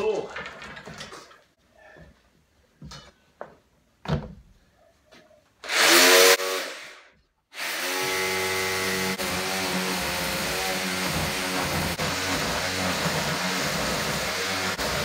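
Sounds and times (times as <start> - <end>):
power saw motor running: 7.6 - 15.0.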